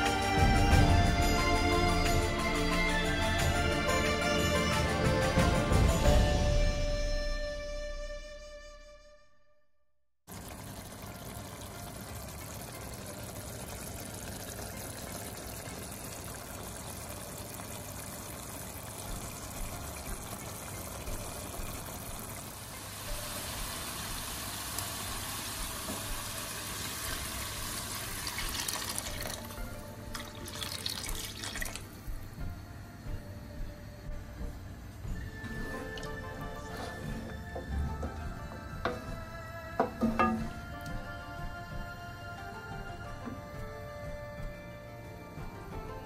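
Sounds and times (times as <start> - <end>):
curry bubbling and sizzling: 10.3 - 31.9
stock pouring and splashing: 10.3 - 32.0.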